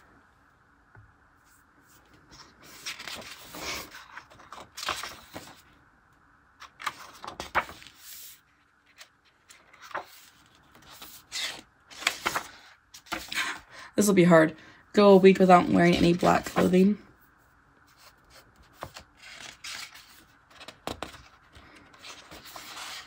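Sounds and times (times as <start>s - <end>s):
paper pages rustling: 1.9s - 5.7s, 6.6s - 13.6s, 15.7s - 16.9s, 17.9s - 23.0s.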